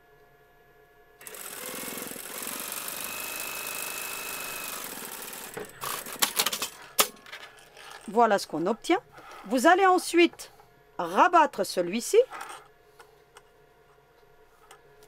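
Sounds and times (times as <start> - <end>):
sewing machine running: 1.2 - 6.8.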